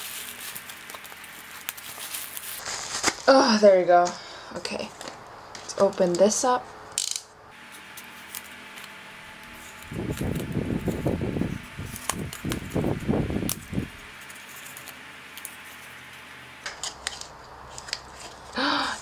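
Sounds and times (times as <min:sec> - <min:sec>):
paper wrapping rustling and crinkling: 0:00.0 - 0:03.6, 0:07.6 - 0:16.2, 0:16.8 - 0:18.6.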